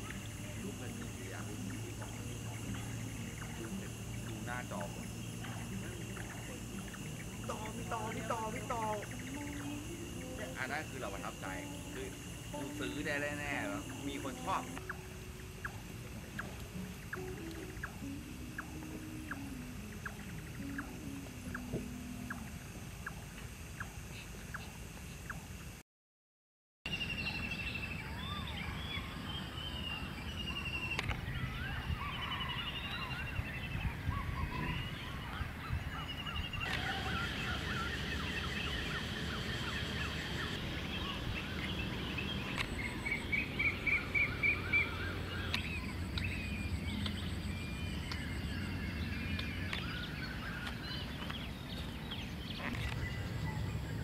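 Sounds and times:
birds chirping and whistling: 0:00.0 - 0:23.2, 0:26.9 - 0:54.0
loud fast bird trill: 0:26.9 - 0:51.7
low steady rumble: 0:33.0 - 0:54.0.

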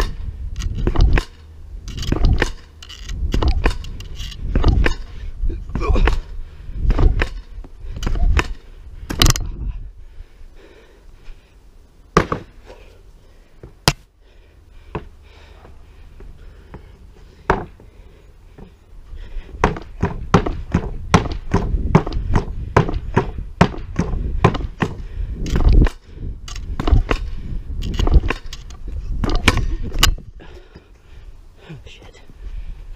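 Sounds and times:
pogo stick landing thunks: 0:00.0 - 0:09.6, 0:12.2 - 0:12.6, 0:19.6 - 0:26.0, 0:26.6 - 0:28.6, 0:29.2 - 0:30.2
pogo stick thuds and clanks: 0:00.0 - 0:09.6, 0:19.6 - 0:30.2.

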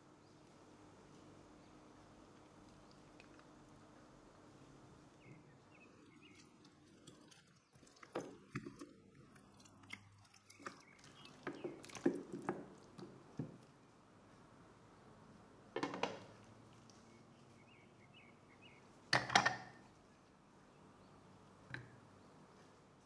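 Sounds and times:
wet squelching of meat: 0:06.1 - 0:13.4.

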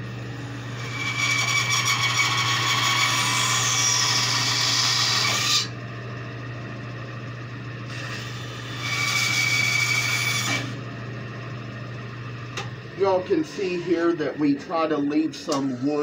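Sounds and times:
steady low hum: 0:00.0 - 0:01.6, 0:05.6 - 0:09.0, 0:10.6 - 0:16.0
bandsaw cutting wood: 0:00.7 - 0:05.7, 0:07.9 - 0:10.8.

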